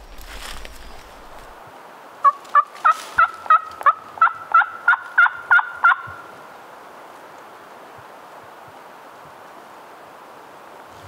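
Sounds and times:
turkey yelps: 0:03.2 - 0:06.2.

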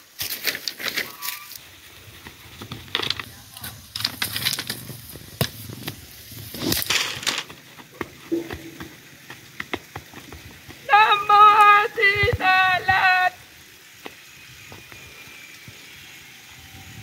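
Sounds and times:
dry sticks crackling and snapping: 0:00.2 - 0:01.6, 0:02.6 - 0:08.5.

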